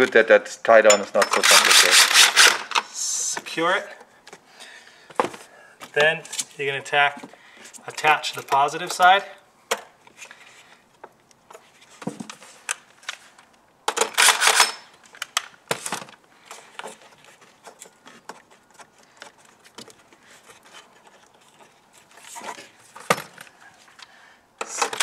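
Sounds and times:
rustling scrape: 16.5s - 23.1s.

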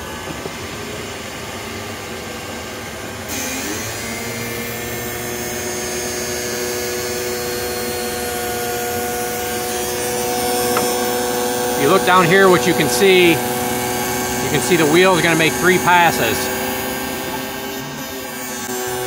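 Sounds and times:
grinding wheel whining: 5.6s - 19.0s.

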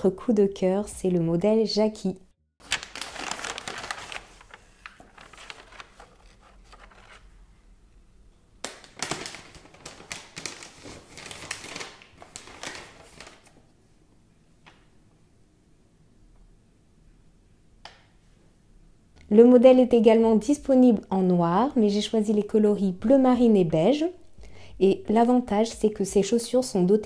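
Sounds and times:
tissue paper rustling: 2.6s - 7.4s, 8.9s - 13.6s.

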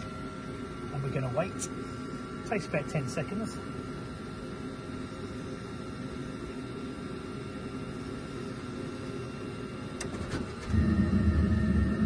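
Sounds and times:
burner fan running with hum: 0.0s - 12.0s.

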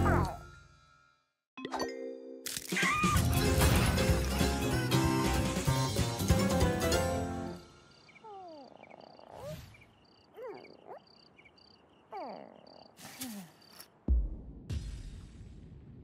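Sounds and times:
crickets chirping: 7.6s - 14.0s.

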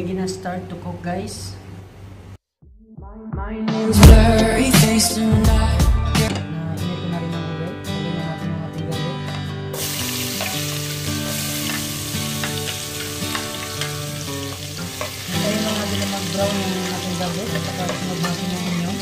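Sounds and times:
garlic sizzling in hot oil: 9.8s - 19.0s
spoon stirring in oil: 10.2s - 19.0s.

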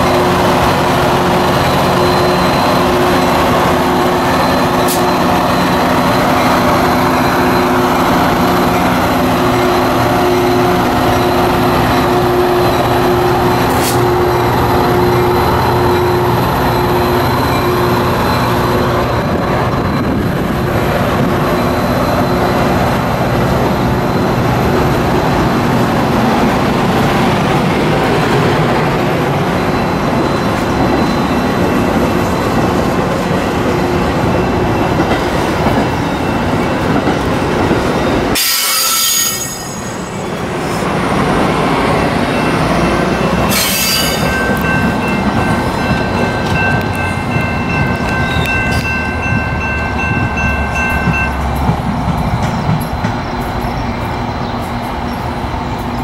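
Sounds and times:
diesel locomotive engine running: 0.0s - 38.4s
train cars rolling on rails: 0.0s - 56.0s.

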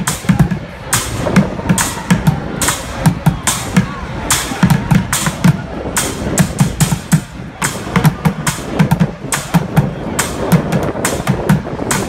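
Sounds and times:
drumming on plastic buckets: 0.0s - 12.0s.

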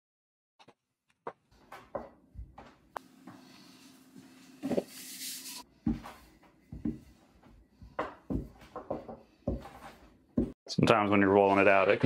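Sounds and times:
rolling dough on wooden board: 5.8s - 10.6s.

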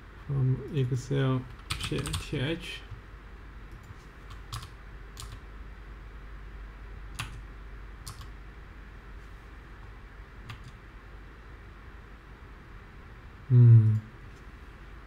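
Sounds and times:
faint low hum: 0.0s - 15.0s
computer keyboard keystrokes: 1.5s - 2.2s, 3.7s - 5.4s, 7.2s - 7.4s, 8.0s - 8.3s, 10.5s - 10.8s.

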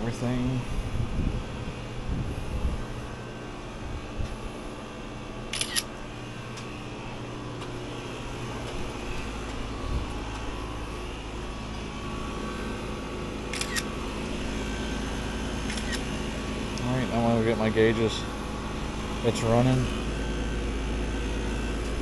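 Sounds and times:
air conditioner hum: 0.0s - 22.0s
phone camera shutter click: 5.5s - 5.9s, 13.5s - 13.9s, 15.7s - 16.1s.

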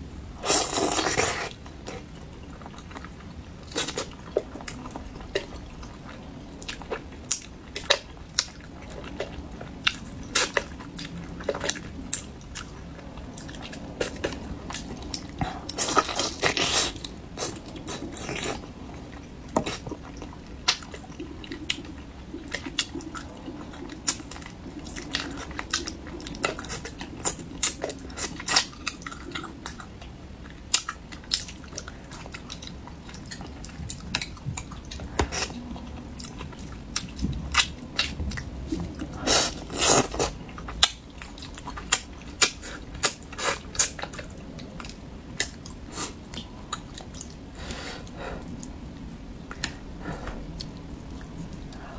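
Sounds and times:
person chewing and sucking: 0.4s - 2.0s.

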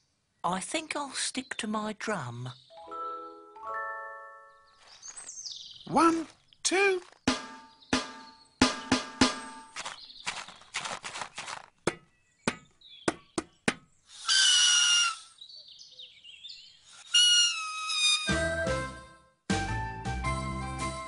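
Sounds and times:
grass blade squeaky whistles: 14.2s - 15.4s, 16.9s - 18.4s.

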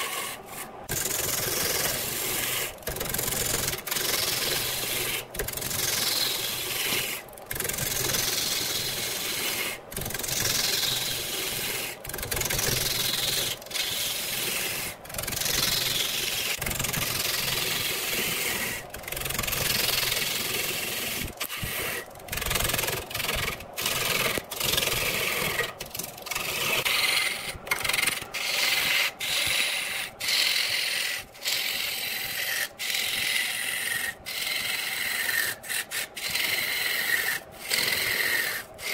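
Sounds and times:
lathe gouge cutting wood: 3.6s - 7.6s, 12.9s - 16.6s, 17.6s - 18.8s, 27.0s - 38.9s.

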